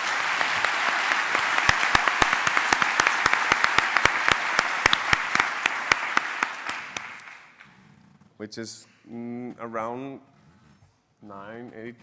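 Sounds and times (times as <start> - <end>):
sharp close claps: 0.0 - 7.7
audience applauding: 0.0 - 7.8.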